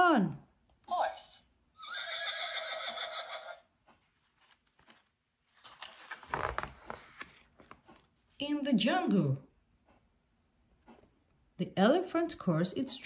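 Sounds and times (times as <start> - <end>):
recorded horse whinny from toy: 1.8 - 3.6
paper page turning: 4.1 - 8.1.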